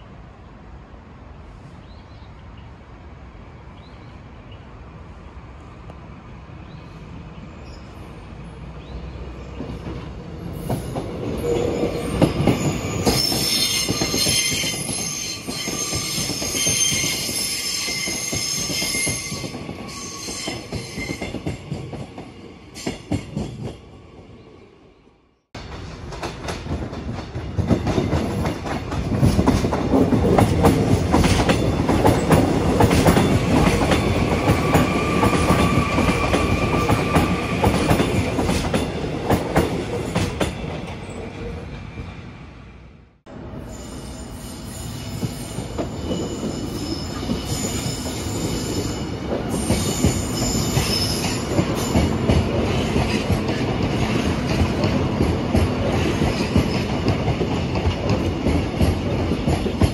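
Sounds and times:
train wheels clattering on rails: 9.5 - 23.8, 25.6 - 41.8, 45.1 - 59.9
train wheels squealing: 10.5 - 22.0, 33.0 - 38.3, 43.6 - 53.3.

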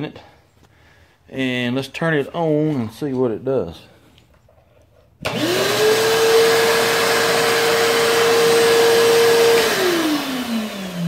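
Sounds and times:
shop vacuum whining: 5.2 - 11.0
vacuum motor winding down: 5.2 - 11.0.

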